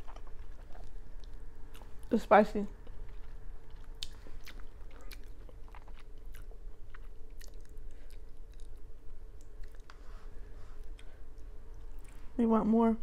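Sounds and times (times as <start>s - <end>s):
chewing noodles: 0.0s - 2.1s, 2.8s - 10.0s
faint steady hum: 0.0s - 13.0s.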